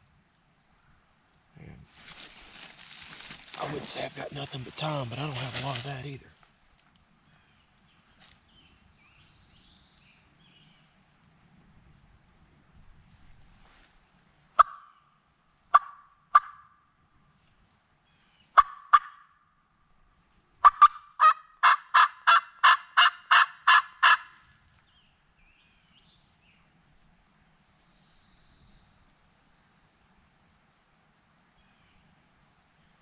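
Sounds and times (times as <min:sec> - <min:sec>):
turkey call yelps: 0:14.6 - 0:15.0, 0:15.7 - 0:16.7, 0:18.6 - 0:19.3, 0:20.6 - 0:24.4.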